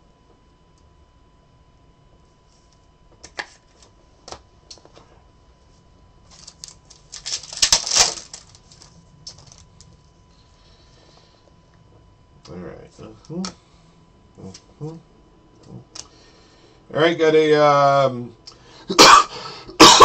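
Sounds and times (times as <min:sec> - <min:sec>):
foil pack crinkling and tearing: 0:06.3 - 0:10.0.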